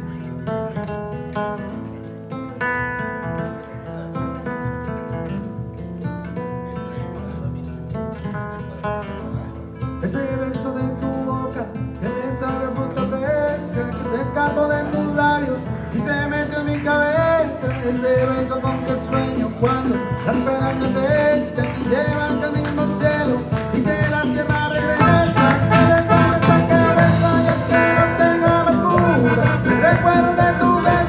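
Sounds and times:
nylon-string guitars playing: 0.0s - 31.0s
person singing: 10.0s - 31.0s.

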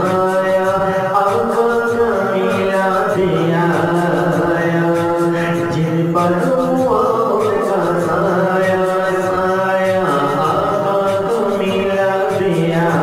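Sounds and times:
person chanting long sliding notes: 0.0s - 13.0s
steady held drone: 0.0s - 13.0s.

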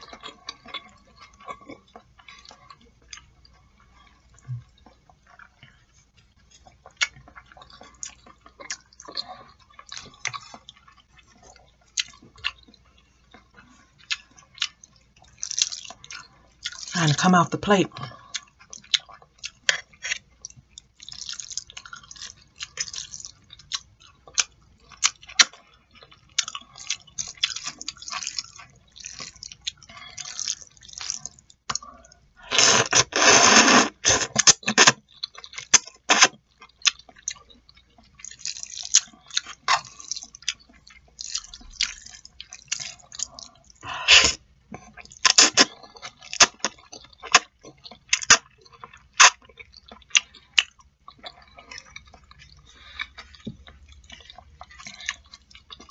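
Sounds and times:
chewing and wet smacks: 0.0s - 55.9s
slurping noodles: 32.4s - 35.0s, 36.0s - 36.3s, 43.9s - 44.4s.

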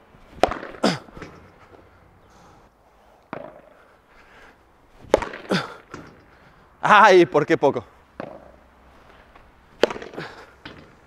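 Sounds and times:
padel racket hitting ball: 0.4s - 1.4s, 3.3s - 3.8s, 5.1s - 6.2s, 8.2s - 8.6s, 9.8s - 11.0s.

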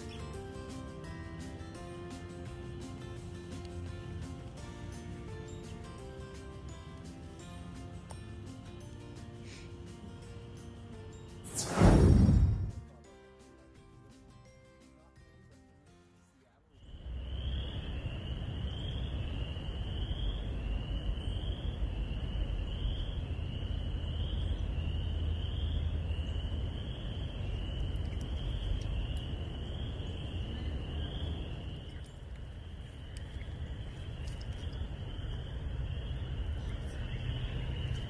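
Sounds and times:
low rumble: 11.5s - 12.8s
frog chorus peeping: 16.8s - 38.0s.

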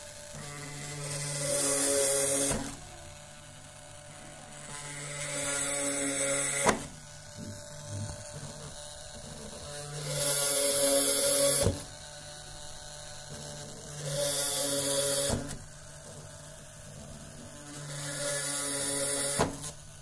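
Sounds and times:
small drill whirring: 0.0s - 20.0s.

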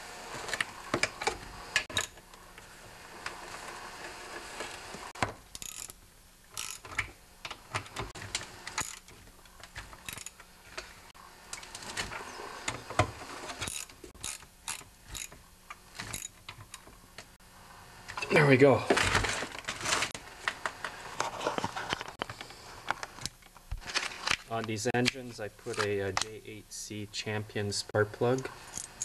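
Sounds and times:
socket ratchet clicking: 5.5s - 6.0s, 6.6s - 7.0s.

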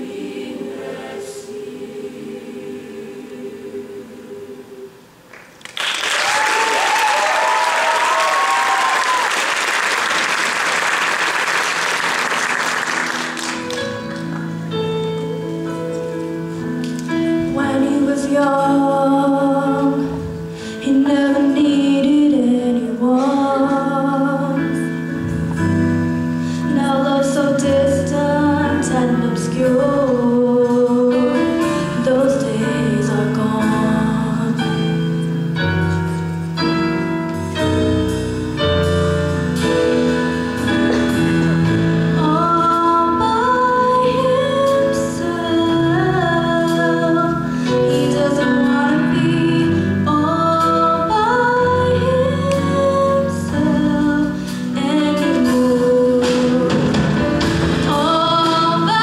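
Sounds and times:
audience applause and cheering: 5.3s - 14.3s
shrill whoops: 6.2s - 9.5s
piano notes: 10.0s - 59.0s.

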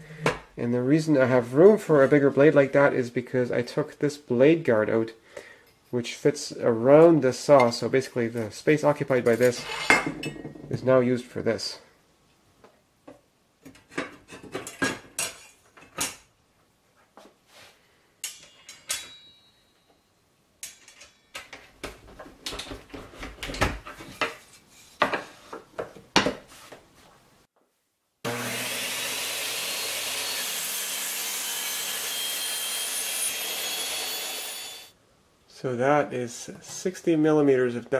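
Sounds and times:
table saw motor whirring: 28.3s - 34.9s.

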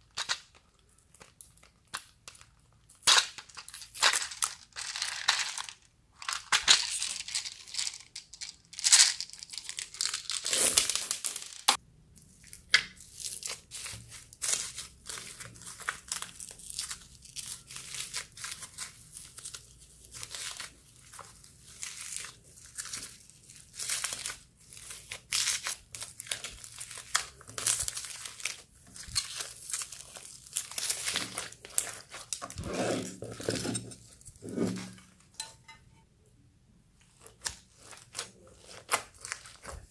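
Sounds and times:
slime squishing and crackling: 8.9s - 11.8s, 12.4s - 33.6s, 37.2s - 39.9s.

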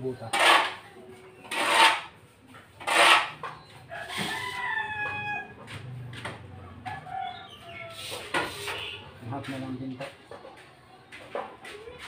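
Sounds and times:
rooster crowing: 3.9s - 5.8s.

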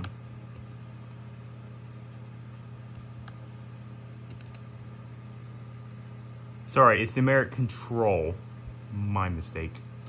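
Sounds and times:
steady low hum: 0.0s - 10.0s
faint computer clicks: 4.3s - 4.6s.

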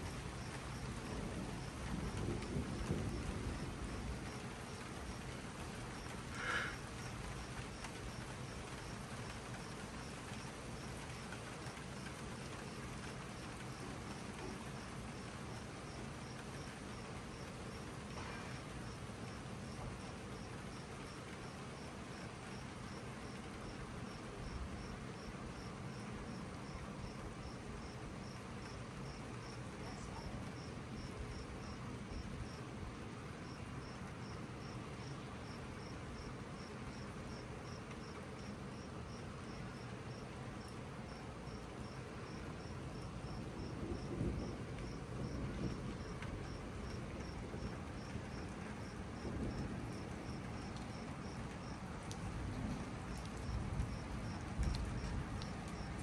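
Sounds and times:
steady hiss: 0.0s - 26.2s
low rumbles of thunder: 0.0s - 34.0s, 41.8s - 56.0s
cricket chirping: 6.0s - 32.8s, 33.4s - 56.0s.

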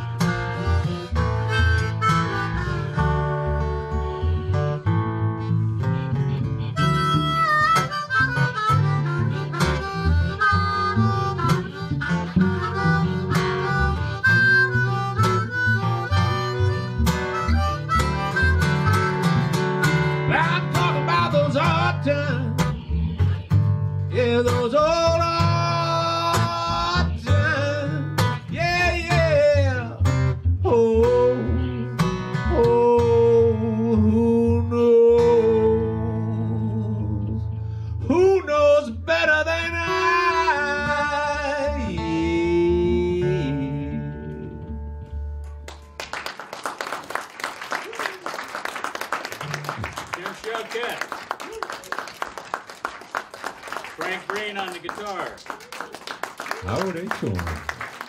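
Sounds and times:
blues harmonica: 0.0s - 45.5s
strummed acoustic guitar: 0.0s - 45.8s.

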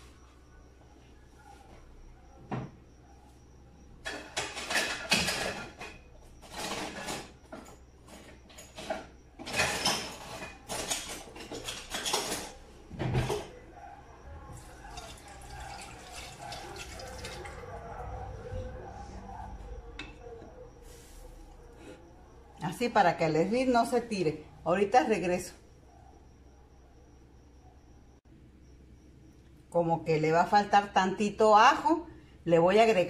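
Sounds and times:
tap water splashing into sink: 15.0s - 17.6s.

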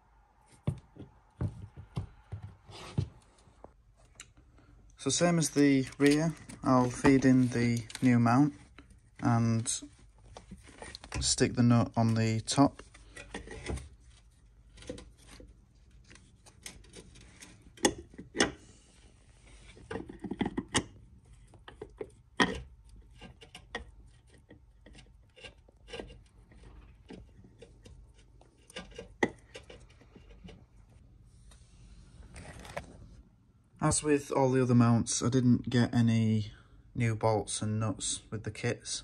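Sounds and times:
metal and rubber clicks and knocks: 19.8s - 25.1s.

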